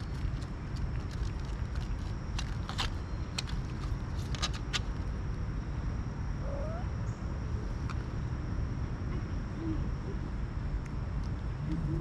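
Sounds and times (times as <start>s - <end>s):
high insect drone: 0.0s - 12.0s.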